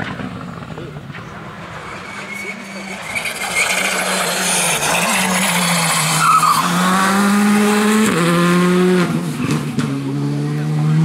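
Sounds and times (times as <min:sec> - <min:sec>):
tyre squeal: 0:01.3 - 0:06.9
rally car engine at high revs: 0:01.4 - 0:11.0.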